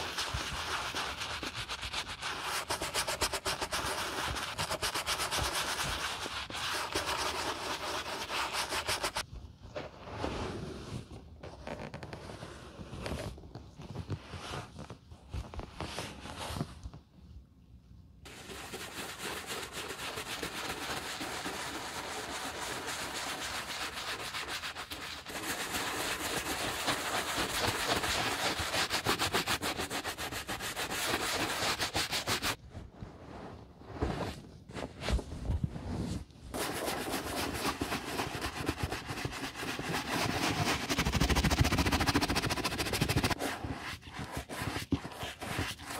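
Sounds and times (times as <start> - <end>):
brush scrubbing leather boot: 0.0 - 9.2, 18.3 - 32.6, 36.6 - 45.9.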